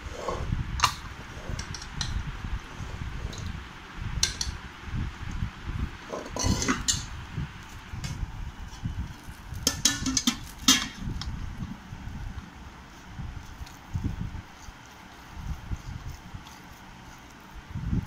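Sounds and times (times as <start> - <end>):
steady low rumble: 0.0 - 18.0
utensil clinking on steel plate: 9.6 - 11.0.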